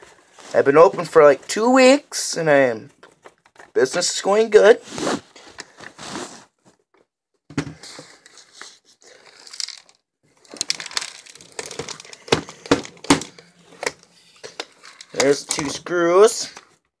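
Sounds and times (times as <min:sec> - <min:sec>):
plastic parts rustling and scraping: 0:02.9 - 0:07.1, 0:07.7 - 0:16.8.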